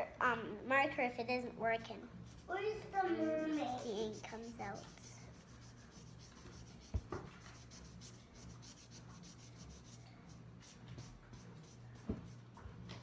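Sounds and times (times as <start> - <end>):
marker scribbling on paper: 2.3 - 12.4.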